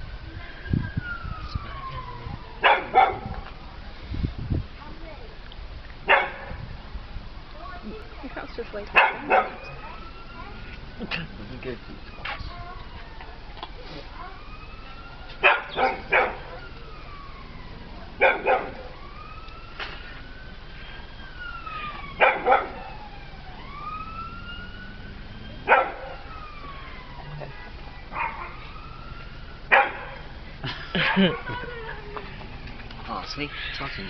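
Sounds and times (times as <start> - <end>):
siren wailing: 0.4 - 3.7, 9.0 - 34.0
dog barking: 2.6 - 3.5, 6.0 - 6.6, 8.9 - 9.8, 15.4 - 16.6, 18.2 - 19.0, 22.2 - 22.9, 25.6 - 26.3, 28.1 - 28.6, 29.7 - 30.3.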